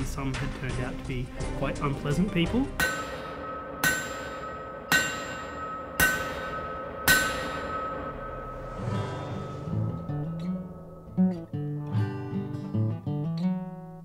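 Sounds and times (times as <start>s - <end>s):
metallic clangs ringing like a bell: 2.8s - 11.6s
acoustic guitar low notes: 7.7s - 14.0s.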